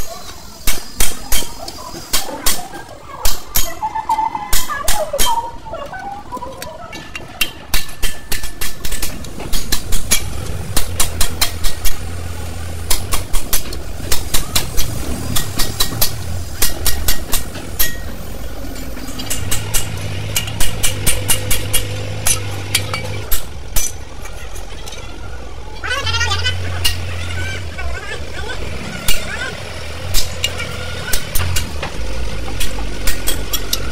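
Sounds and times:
vehicle engine humming: 0.0s - 33.9s
hammer striking metal chisel: 0.6s - 2.6s, 12.9s - 18.2s, 19.0s - 24.0s, 32.6s - 33.9s.

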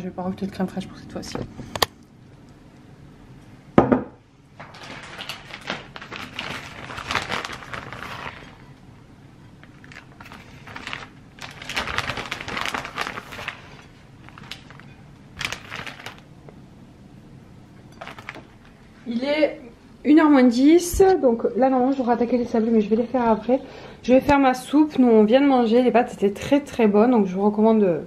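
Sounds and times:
bowl thunk on table: 3.8s - 4.2s
plastic bag crinkling: 4.6s - 8.8s, 9.6s - 16.3s, 17.9s - 18.8s.

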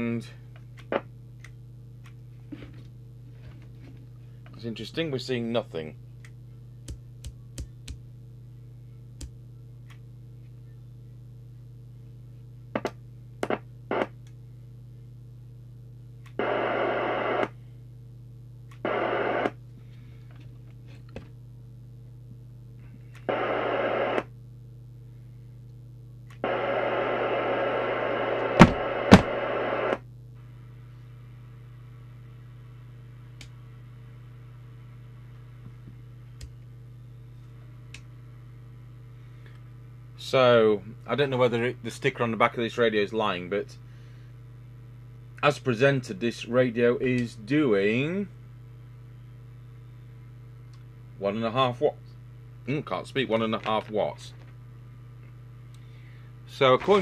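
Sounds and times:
low hum: 0.0s - 57.0s
radio static hiss: 12.8s - 14.2s, 16.4s - 17.6s, 18.8s - 19.6s, 23.2s - 24.3s, 26.4s - 35.2s, 56.5s - 57.0s.

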